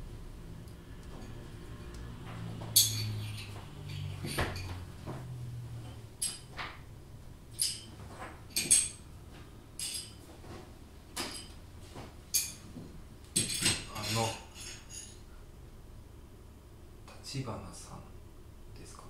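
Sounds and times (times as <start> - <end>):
crockery shards clinking: 2.6 - 4.9, 7.5 - 9.1, 9.8 - 10.2, 12.3 - 12.6, 13.4 - 15.2.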